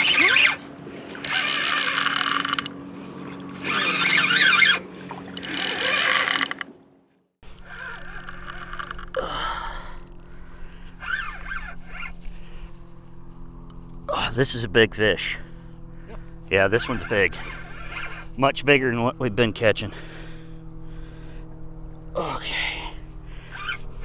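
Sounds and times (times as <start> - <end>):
fishing reel drag buzzing: 0.0 - 6.7, 7.5 - 12.6, 15.5 - 18.4.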